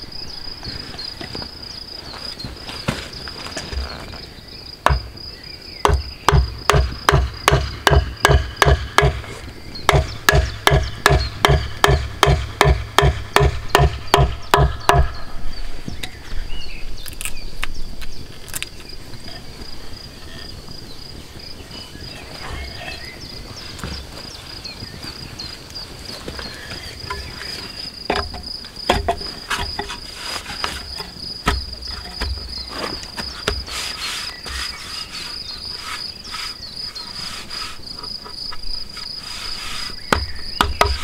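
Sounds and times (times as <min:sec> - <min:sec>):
high insect trill: 0:00.0 - 0:41.0
wooden mallet knocking on wood: 0:05.8 - 0:09.2, 0:09.9 - 0:15.2, 0:28.1 - 0:29.9, 0:40.1 - 0:41.0.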